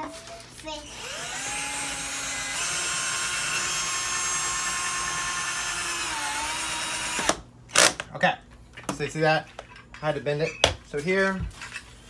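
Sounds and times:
cordless drill driving screw: 0.9 - 8.0.

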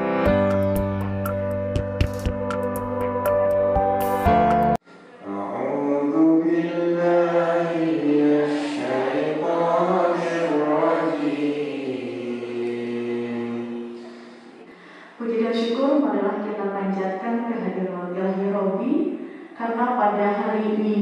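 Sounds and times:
instrumental music: 0.0 - 4.8
man chanting into a microphone: 5.2 - 11.4.

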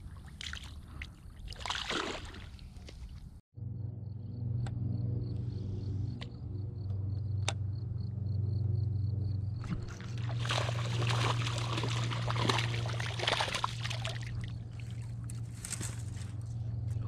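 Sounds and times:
water splashing and sloshing: 0.0 - 3.3, 9.6 - 16.3
steady low hum: 3.6 - 17.0.

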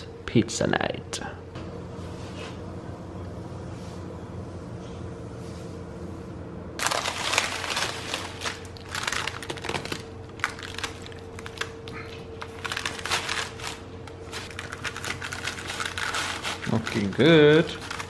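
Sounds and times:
faint steady hum: 0.0 - 18.0
pizza wheel cutting crust: 12.8 - 18.0.

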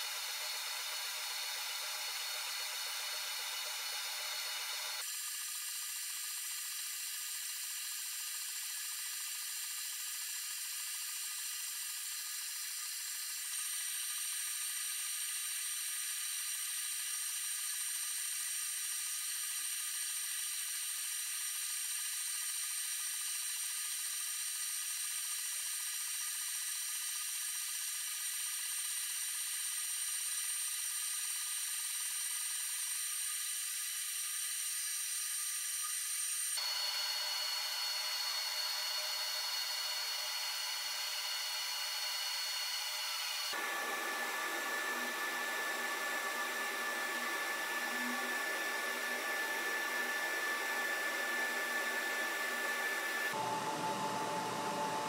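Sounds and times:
laser cutter whine and hiss: 0.0 - 55.0.

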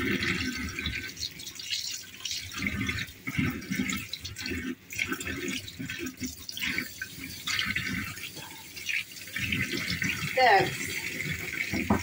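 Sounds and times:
tap water splashing in sink: 0.0 - 12.0.

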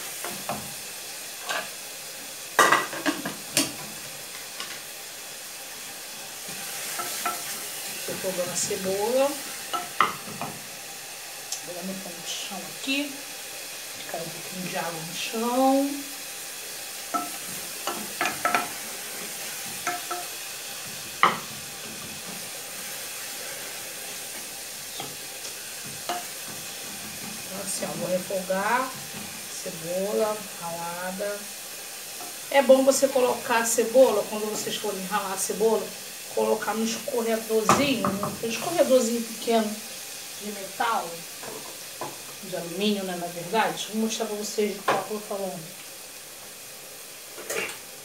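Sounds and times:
pan sizzling: 0.0 - 48.0
kitchen utensils and pots clattering: 2.6 - 4.8, 17.1 - 22.5, 24.4 - 27.8, 47.4 - 47.9
wooden spoon knocking on pan: 9.7 - 10.6, 17.1 - 18.8, 19.7 - 20.3, 20.9 - 22.4, 25.8 - 27.5, 37.7 - 38.7, 41.4 - 42.3.

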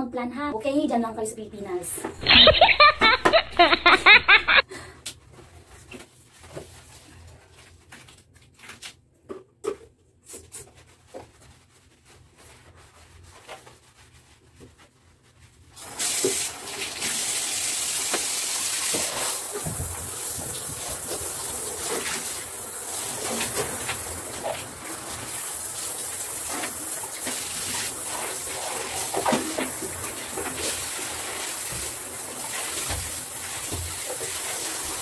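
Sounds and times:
shower head spraying water: 2.2 - 4.6, 15.8 - 35.0.

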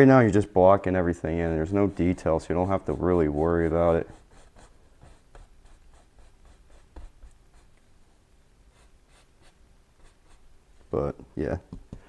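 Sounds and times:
paintbrush strokes on canvas: 1.2 - 7.8, 8.7 - 10.5
tap on canvas: 11.7 - 12.0.

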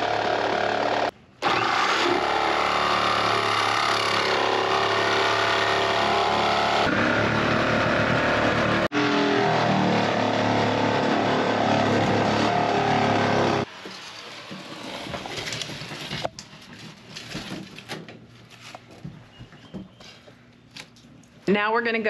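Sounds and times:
jigsaw cutting metal: 0.0 - 13.7
handling noises: 13.7 - 21.4.

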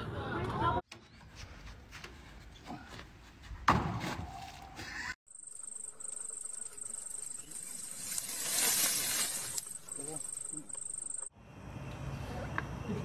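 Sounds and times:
insects trilling: 5.3 - 11.3.

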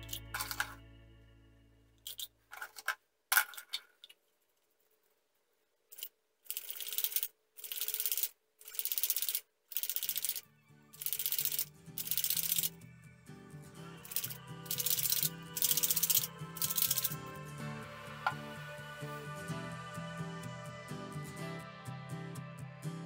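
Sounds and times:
paint bottle shaken rattling: 0.0 - 0.8, 14.0 - 17.2
background music: 0.0 - 2.1, 10.0 - 23.0.

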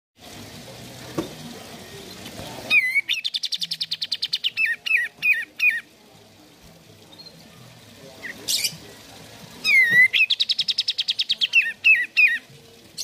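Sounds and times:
bird whistling and trilling: 2.7 - 5.8, 9.6 - 12.4.

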